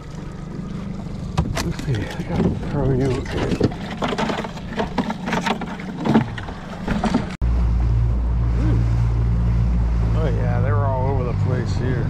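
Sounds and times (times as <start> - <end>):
steady low hum: 0.0 - 12.0
fish knocking and clicking: 1.4 - 7.4.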